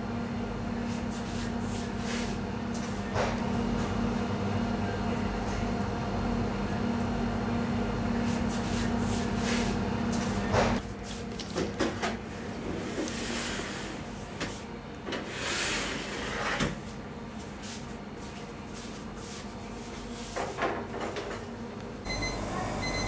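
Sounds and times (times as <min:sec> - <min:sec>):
steady machine hum: 0:00.0 - 0:10.9, 0:21.7 - 0:23.0
baking tray sliding into rack: 0:12.8 - 0:16.8.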